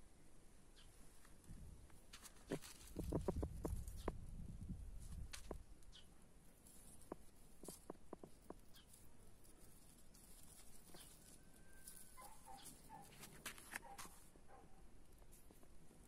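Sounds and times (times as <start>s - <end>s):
leaves and stems rustling: 1.2s - 4.1s, 5.0s - 14.4s.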